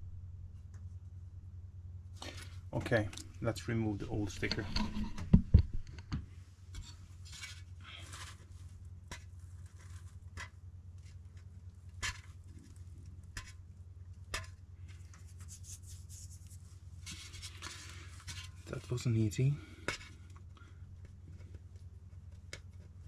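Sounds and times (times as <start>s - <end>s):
sticker peeling rustling scrape: 14.4s - 19.0s.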